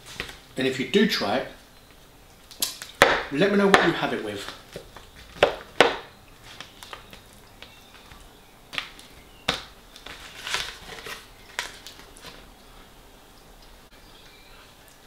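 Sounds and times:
fork scraping foil tray: 10.1s - 12.4s.

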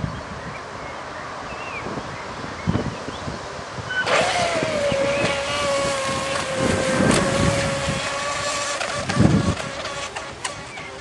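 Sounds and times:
wind on microphone: 0.0s - 11.0s
electric boat motor whining: 3.9s - 11.0s.

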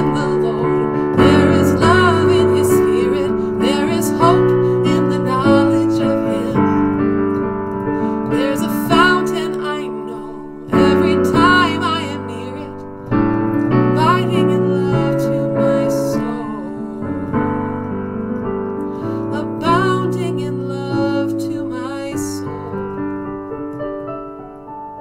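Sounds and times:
piano playing slow chords: 0.0s - 25.0s.

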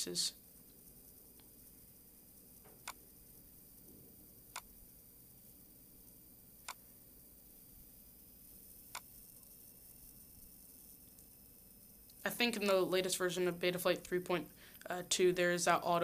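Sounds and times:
faint steady hiss: 0.0s - 16.0s
computer mouse clicks: 2.6s - 3.1s, 8.8s - 10.1s.

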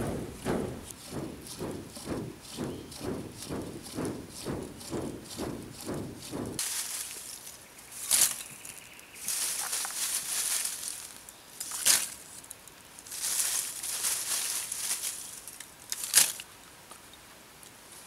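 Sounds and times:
charcoal rustling and clinking: 6.6s - 12.4s, 13.0s - 16.4s.

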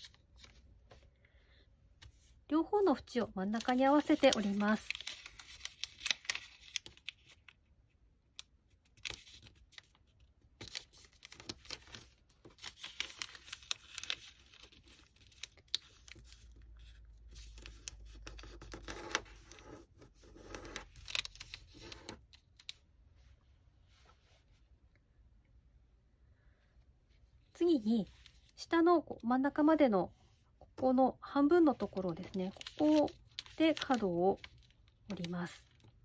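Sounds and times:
paper folding rustles: 3.6s - 7.6s, 8.8s - 23.3s, 31.7s - 35.9s.

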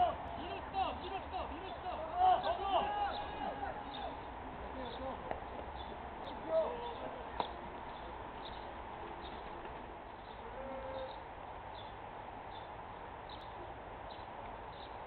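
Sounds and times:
steady low hiss: 0.0s - 15.0s
small bird chirping: 5.7s - 9.4s.

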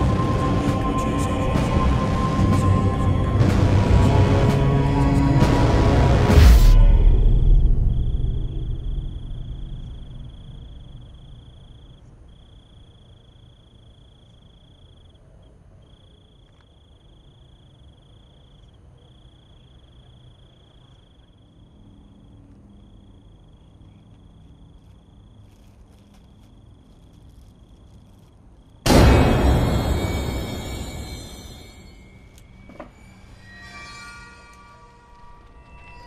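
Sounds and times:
low rumble: 0.0s - 11.9s
cricket trilling: 7.6s - 28.9s.

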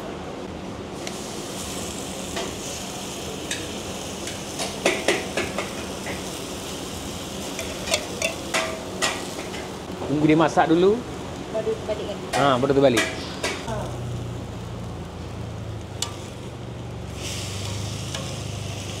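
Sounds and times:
filling sizzling on a griddle: 0.9s - 19.0s.

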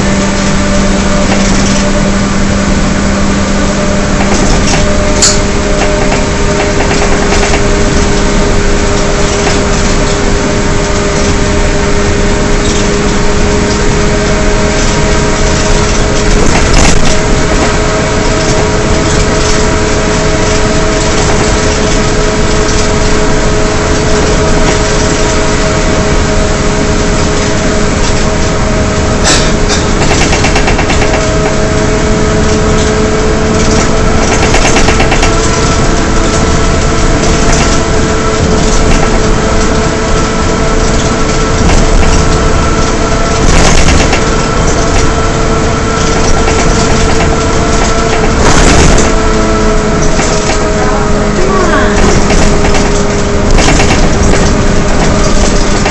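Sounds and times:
bus drivetrain howl: 0.0s - 55.9s
low hum: 0.0s - 55.9s
road noise: 0.0s - 55.9s.

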